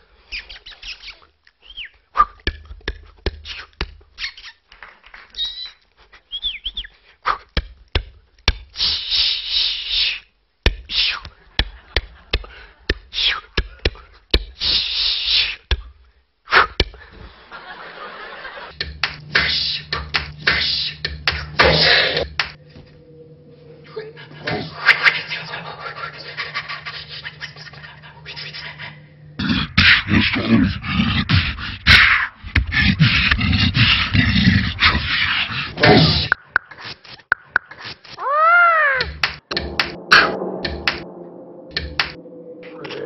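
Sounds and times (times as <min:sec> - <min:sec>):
mouth hissing: 0:08.8 - 0:10.3, 0:14.6 - 0:15.6
low steady hum: 0:18.8 - 0:34.9, 0:39.5 - 0:43.0
mouth clicks and pops: 0:36.3 - 0:38.2.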